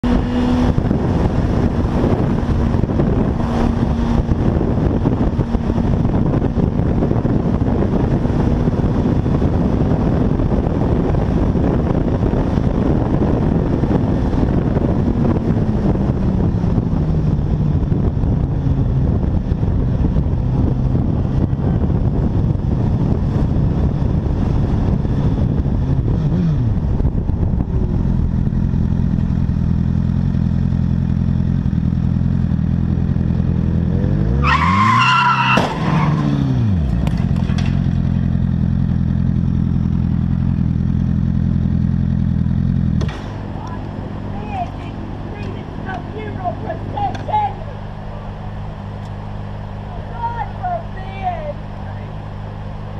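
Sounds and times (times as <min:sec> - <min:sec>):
motorcycle engine running: 0:00.0 - 0:34.2, 0:36.2 - 0:52.9
wind and road noise: 0:00.0 - 0:52.9.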